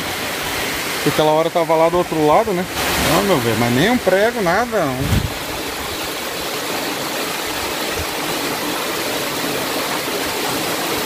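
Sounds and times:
river rushing over gravel: 0.0 - 11.0.

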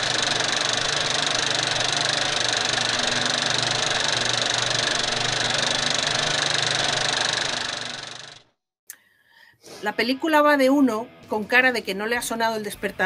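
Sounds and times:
movie projector clattering: 0.0 - 8.5.

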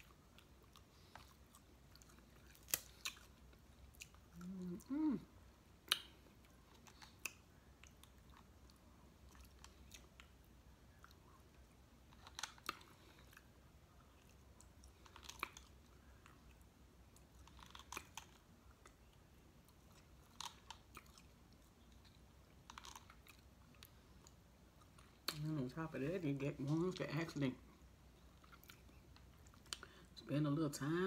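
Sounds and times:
soft chewing: 0.0 - 30.2
crab shell cracking: 2.5 - 3.3.

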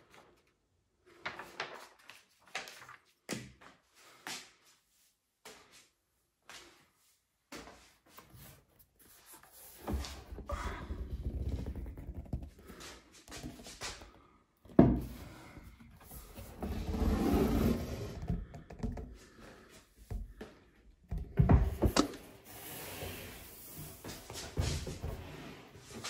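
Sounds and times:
board rubbing and scraping: 16.0 - 19.1.

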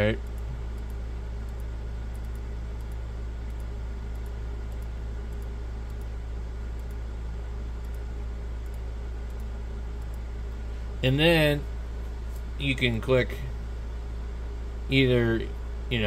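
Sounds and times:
steady low hum: 0.0 - 16.0
computer mouse clicks: 0.2 - 6.1, 6.7 - 7.0, 7.8 - 10.2.

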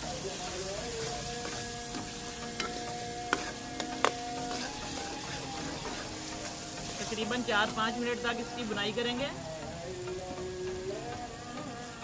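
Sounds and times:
onions sizzling in pan: 0.0 - 12.0
metal ladle knocking on pan: 2.0 - 4.6.

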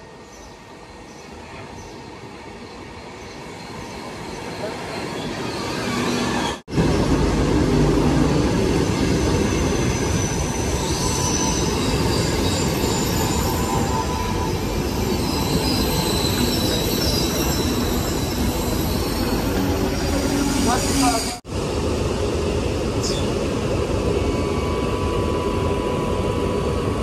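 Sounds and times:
train wheels rumbling on rails: 3.7 - 27.0
faint high squeal: 10.0 - 21.4.

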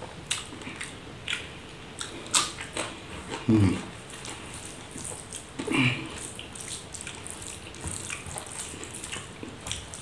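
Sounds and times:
wet chewing and smacking: 0.2 - 10.0
man murmuring: 3.4 - 3.9.

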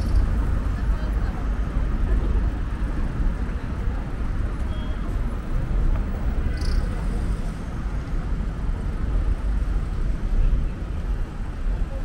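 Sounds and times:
murmur of voices: 0.0 - 4.5
road traffic rumble: 0.0 - 12.0.

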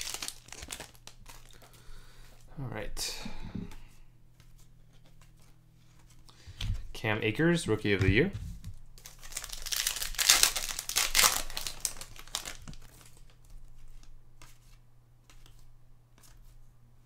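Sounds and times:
plastic wrapper crinkling: 0.0 - 2.4, 8.6 - 14.7.

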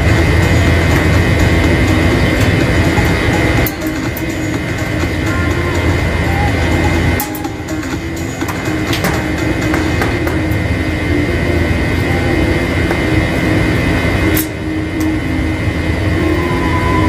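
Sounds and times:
air conditioning units running: 0.0 - 17.0.

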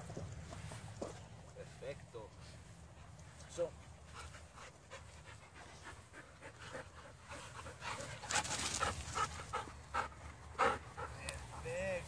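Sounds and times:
dogs panting: 0.0 - 12.0.

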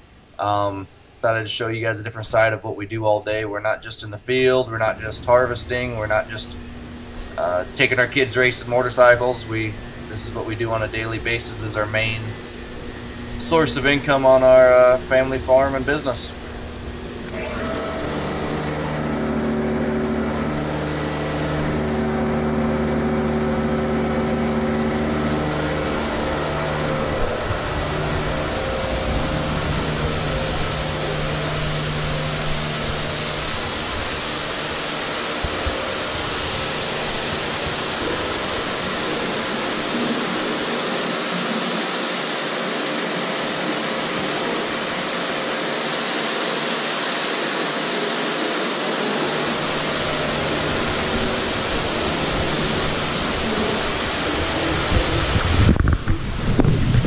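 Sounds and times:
machinery humming: 0.0 - 57.0
hose spraying water hiss: 29.6 - 57.0.

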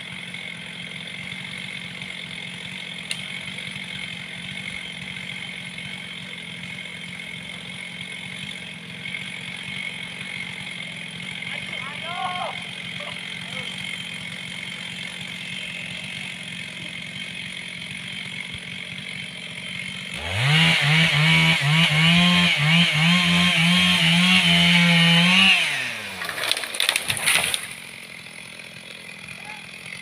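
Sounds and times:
chainsaw cutting wood: 0.0 - 30.0
crackling: 26.2 - 27.8.

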